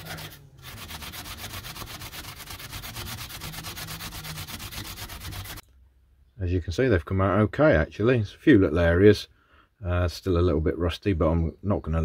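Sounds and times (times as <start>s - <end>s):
wire wool scrubbing metal: 0.0s - 5.6s.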